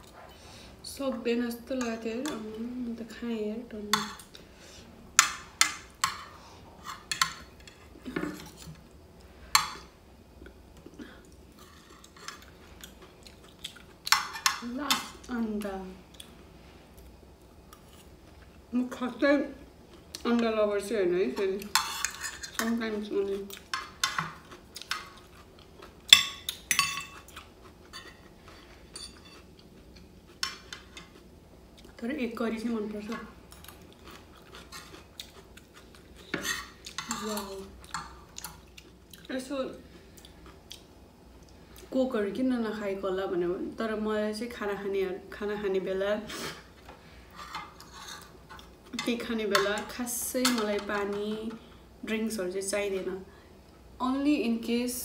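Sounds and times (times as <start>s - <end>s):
cutlery clinking on ceramic plate: 26.1s - 27.3s.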